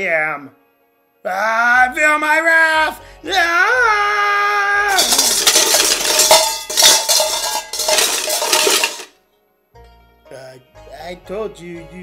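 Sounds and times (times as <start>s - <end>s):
metal cutlery clattering: 4.9s - 9.1s.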